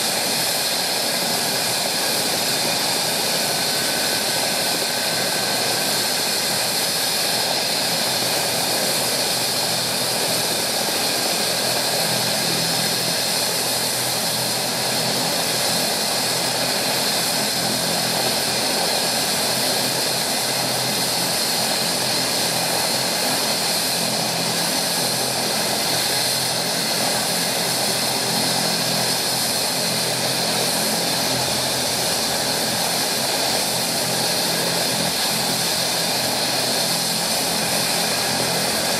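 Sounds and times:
helicopter turbine whine: 0.0 - 38.9.

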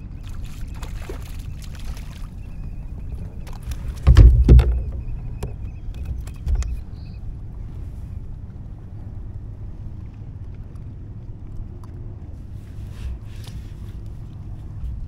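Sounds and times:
wind and water rumble: 0.0 - 15.0
low thump: 4.0 - 6.8.

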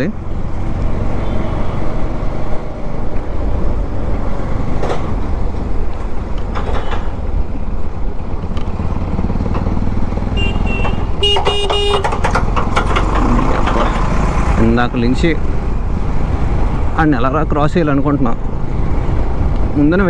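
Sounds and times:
motorcycle engine and road noise: 0.0 - 20.0
vehicle horn: 10.3 - 12.2.

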